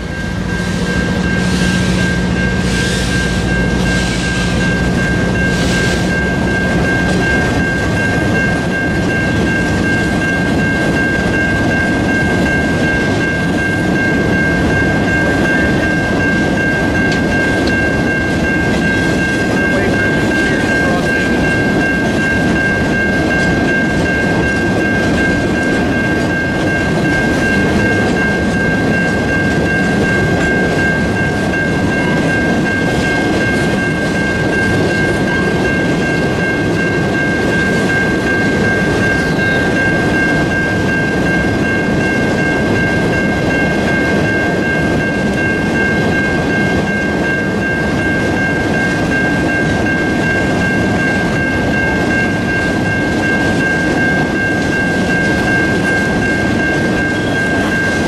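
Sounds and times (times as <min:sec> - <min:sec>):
steady high-pitched tone: 0:00.0 - 0:58.0
train cars rolling rumble: 0:00.0 - 0:58.0.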